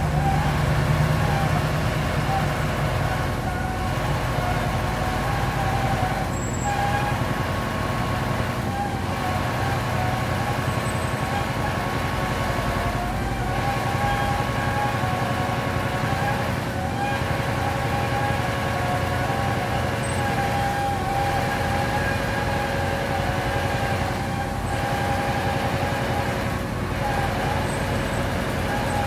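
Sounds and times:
paving machine engine drone: 0:00.0 - 0:29.0
wavering whine: 0:00.0 - 0:29.0.

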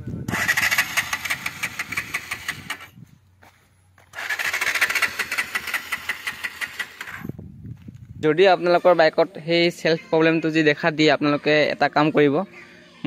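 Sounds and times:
motorcycle starter cranking engine: 0:00.3 - 0:03.0, 0:04.1 - 0:07.4.

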